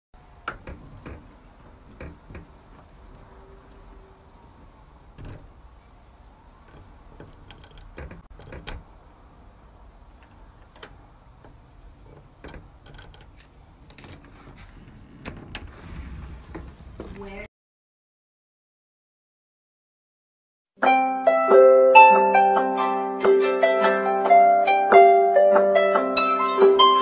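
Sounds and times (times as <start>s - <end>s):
keys jangling: 0.2s - 2.4s, 7.2s - 8.8s, 12.1s - 14.3s
key scraping into a deadbolt: 0.2s - 5.7s, 6.6s - 9.0s, 10.2s - 15.8s.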